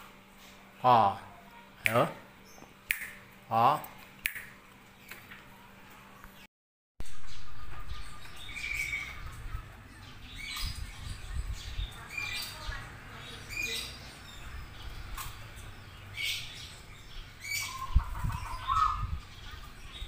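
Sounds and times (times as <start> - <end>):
birds giving short high chirps: 7.1 - 20.0.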